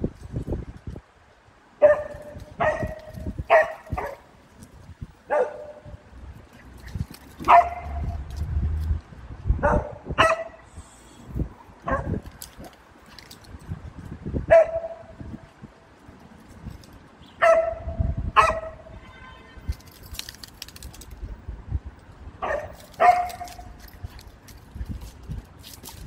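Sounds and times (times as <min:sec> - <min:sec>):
dog barking deeply: 0:05.3 - 0:05.9, 0:07.5 - 0:08.1, 0:09.6 - 0:10.6, 0:11.8 - 0:12.2.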